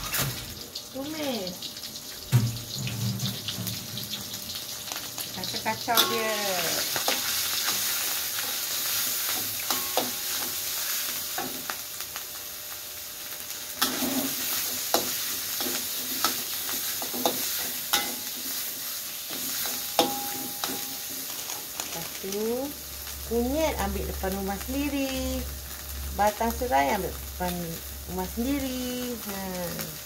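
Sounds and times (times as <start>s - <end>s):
food sizzling in hot oil: 0.0s - 30.0s
metal ladle scraping a wok: 13.8s - 22.0s.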